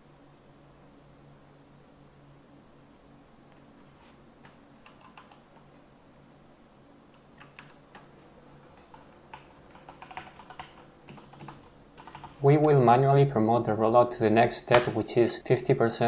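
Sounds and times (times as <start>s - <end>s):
faint low hum: 0.0s - 16.0s
computer keyboard typing: 4.8s - 5.6s, 7.2s - 12.7s.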